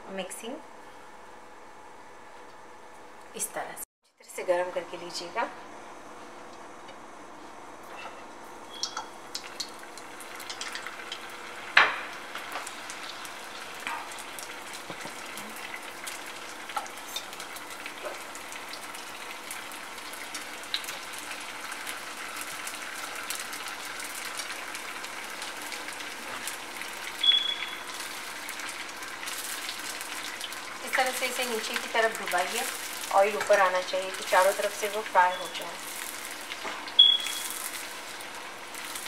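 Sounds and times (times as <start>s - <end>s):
food deep-frying with crackling pops: 7.8s - 39.0s.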